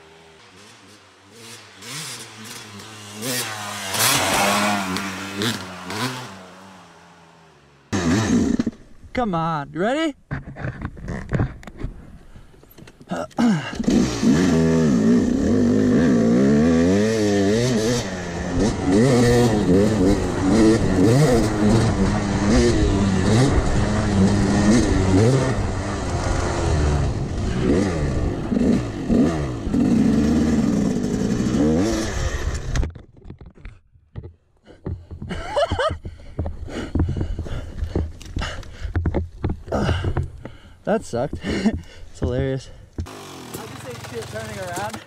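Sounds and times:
dirt bike engine revving: 0.0 - 8.9, 13.6 - 32.8, 43.0 - 45.0.

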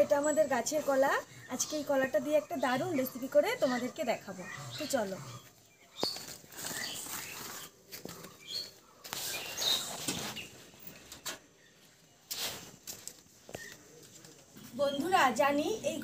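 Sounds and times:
rustling: 6.0 - 11.4.

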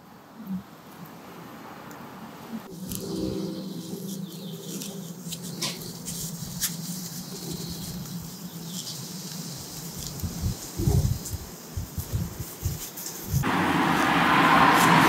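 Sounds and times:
scratchy rubbing: 2.8 - 13.5.

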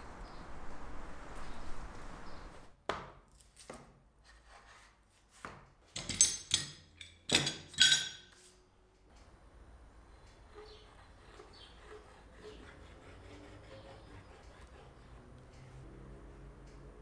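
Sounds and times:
metal clamps clanking: 6.0 - 8.3.

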